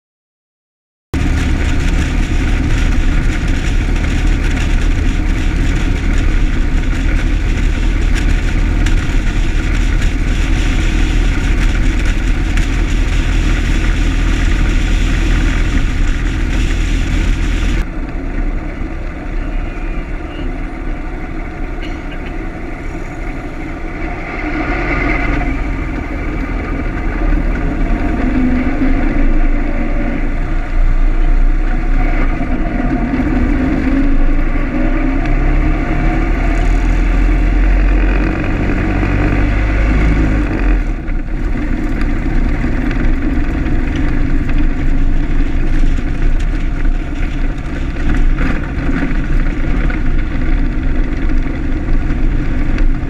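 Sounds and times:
old car engine running: 1.2 - 53.0
road noise: 1.2 - 53.0
wind rumble on microphone: 1.2 - 53.0.

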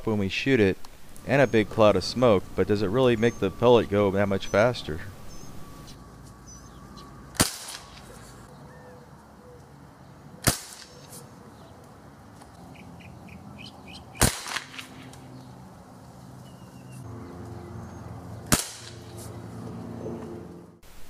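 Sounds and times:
pellet rifle shots popping: 7.3 - 8.2, 10.4 - 11.2, 14.2 - 15.2, 18.4 - 19.0.

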